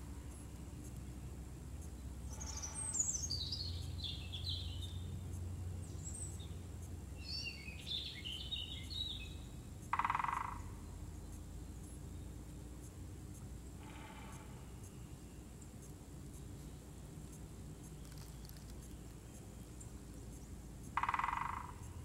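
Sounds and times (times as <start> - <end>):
songbirds singing: 0.0 - 22.0
woodpecker drumming on wood: 9.8 - 10.8, 20.4 - 22.0.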